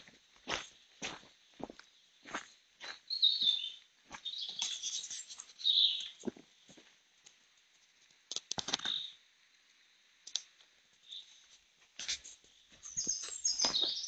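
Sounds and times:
footsteps crunching on forest track: 0.0s - 7.0s, 11.1s - 14.0s
bird chirps: 3.0s - 6.2s, 8.8s - 9.2s, 12.8s - 14.0s.

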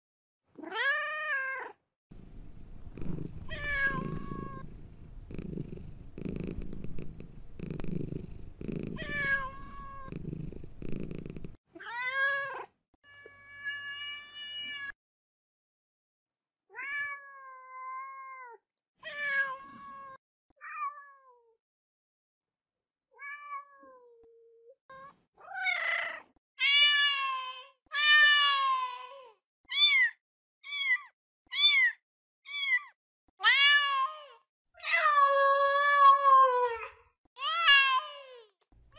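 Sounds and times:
cats meowing: 3.5s - 4.6s, 8.9s - 10.1s.

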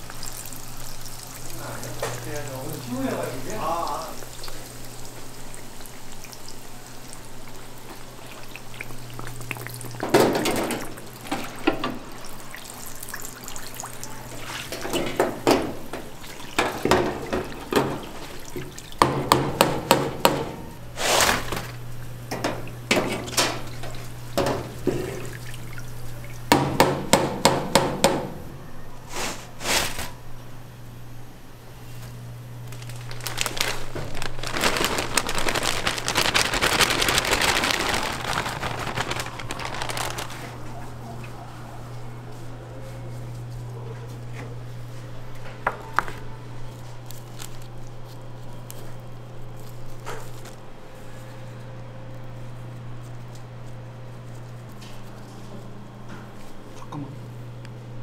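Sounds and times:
food deep-frying in oil: 0.0s - 19.5s
skimmer basket clanking on steel: 14.6s - 20.8s, 22.3s - 28.5s.

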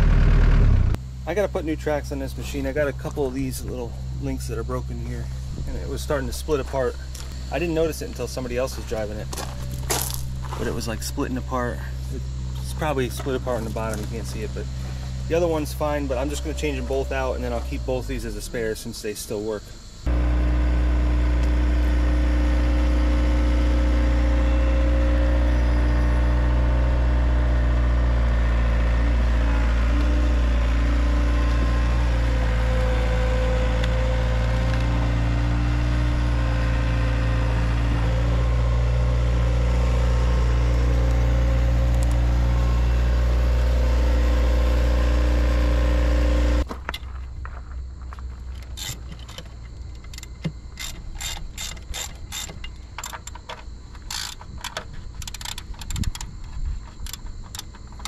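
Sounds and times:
diesel engine running: 0.0s - 18.7s, 19.8s - 46.7s.

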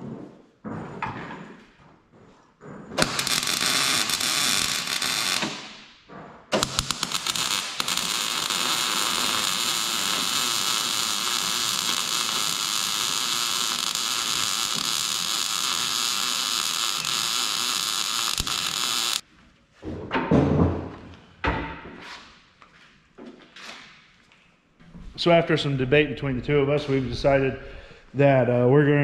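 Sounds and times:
welder arc crackling and hissing: 3.0s - 5.8s, 6.6s - 19.2s.

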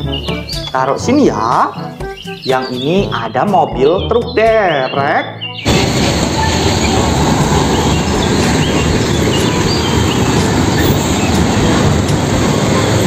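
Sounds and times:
road traffic rumble: 5.4s - 13.0s
truck driving past: 5.6s - 13.0s
motorcycles driving past: 5.7s - 13.0s.

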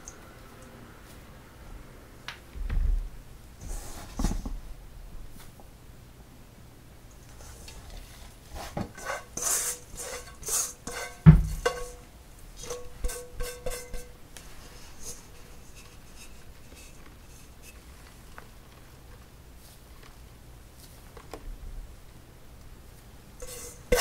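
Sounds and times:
metal bowl scraped and knocked: 8.9s - 14.2s, 23.4s - 24.0s
dull heavy knock: 11.2s - 11.6s.

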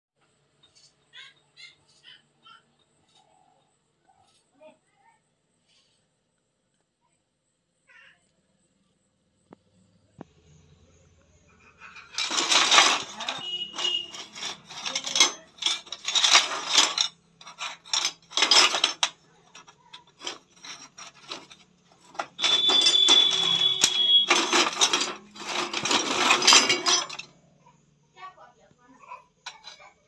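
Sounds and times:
scrap metal clinking and rattling: 11.5s - 27.8s, 29.4s - 30.0s.

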